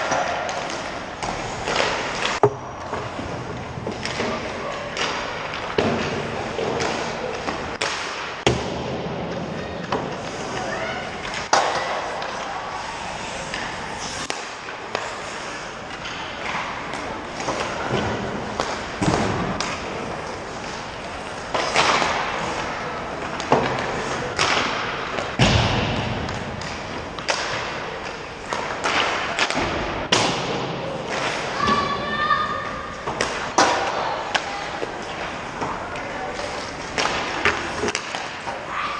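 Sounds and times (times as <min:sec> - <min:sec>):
skates scraping ice: 0:00.0 - 0:02.4, 0:09.3 - 0:29.8, 0:31.0 - 0:38.9
sticks and pucks knocking: 0:00.0 - 0:08.6, 0:33.0 - 0:38.6.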